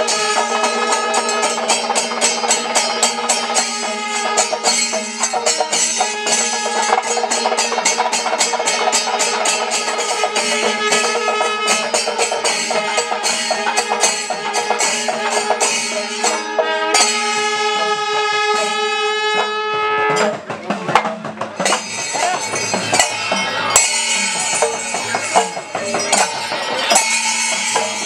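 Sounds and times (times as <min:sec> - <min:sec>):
drums and cymbals: 0:00.0 - 0:28.0
steady held tones: 0:21.0 - 0:28.0.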